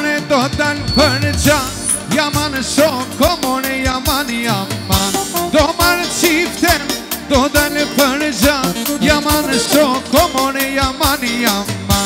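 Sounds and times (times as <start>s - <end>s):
steady drum beat: 0.5s - 3.2s
electronic keyboard melody: 5.0s - 11.2s.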